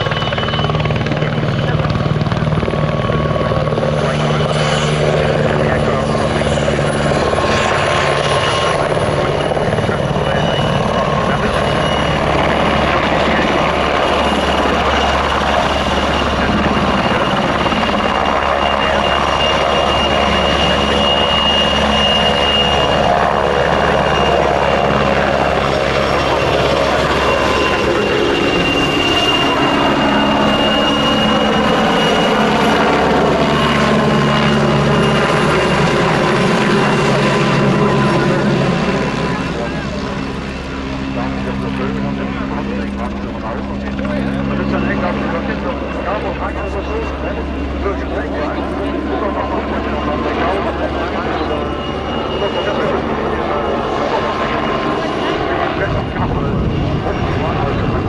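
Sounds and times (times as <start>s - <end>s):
helicopter flying close by: 0.0s - 58.0s.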